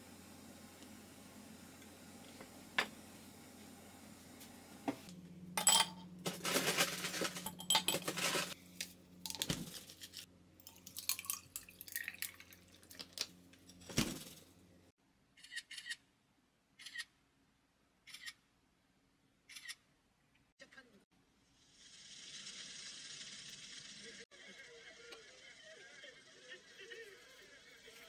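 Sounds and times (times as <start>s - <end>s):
dishes and cutlery clinking: 5.6s - 8.6s.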